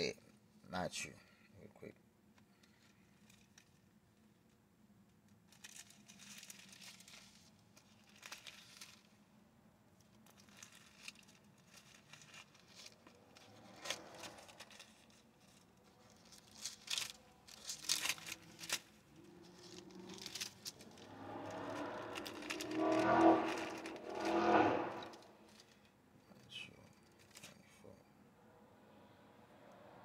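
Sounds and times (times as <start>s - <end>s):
thin pages rustling: 5.5s - 9.2s, 10.2s - 25.8s.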